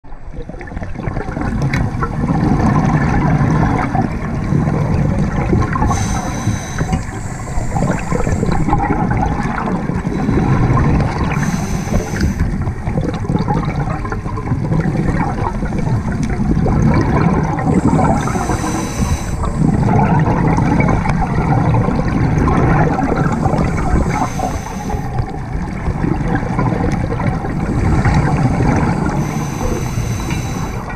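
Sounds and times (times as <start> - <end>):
diver breathing through regulator: 5.4 - 13.0, 17.0 - 25.4, 27.2 - 30.9.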